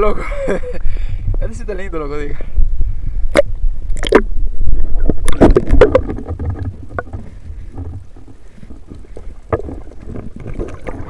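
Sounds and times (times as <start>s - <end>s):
water sloshing and splashing: 5.1s - 11.0s.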